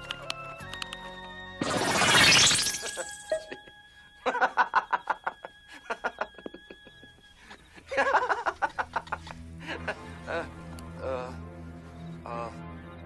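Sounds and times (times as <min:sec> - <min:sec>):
rapid rhythmic laughter: 0:02.9 - 0:10.8.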